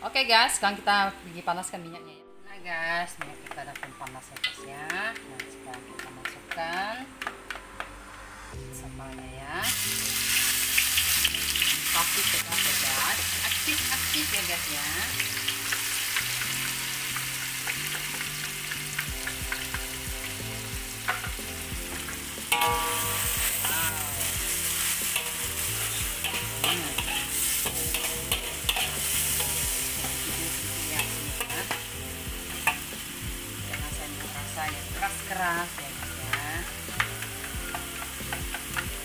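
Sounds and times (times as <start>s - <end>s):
paste sizzling in hot oil: 9.6s - 39.0s
metal spatula scraping wok: 22.0s - 33.1s.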